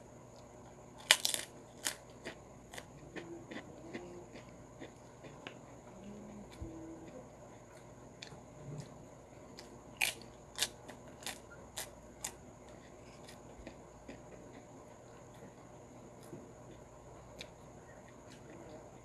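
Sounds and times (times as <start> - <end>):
crunching prawn cracker: 1.0 - 5.6, 8.2 - 14.7
faint chewing ticks: 1.2 - 19.0.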